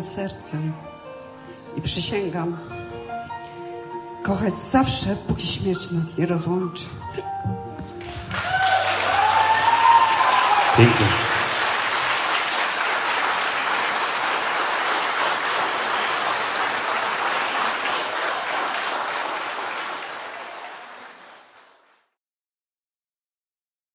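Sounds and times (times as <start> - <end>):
crowd applauding: 8.0 - 22.1.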